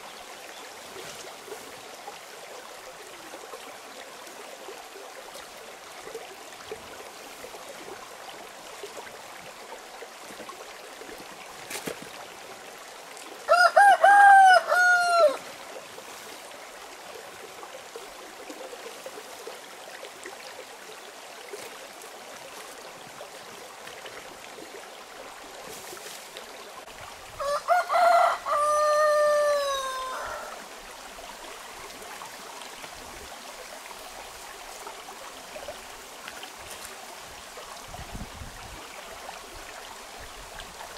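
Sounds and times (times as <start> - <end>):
stream rushing: 0.0 - 40.9
rooster crowing: 13.5 - 15.4, 27.4 - 30.6.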